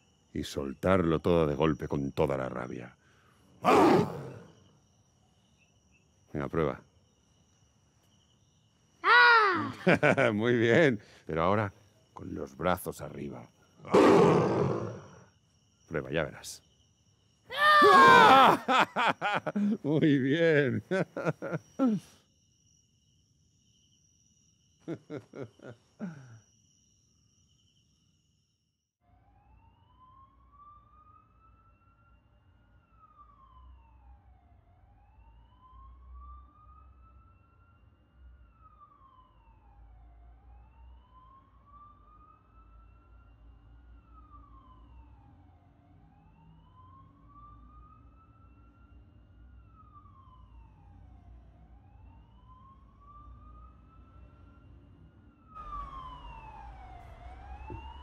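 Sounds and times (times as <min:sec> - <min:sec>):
emergency siren wailing: 0:17.8 - 0:20.0, 0:29.1 - 0:58.0.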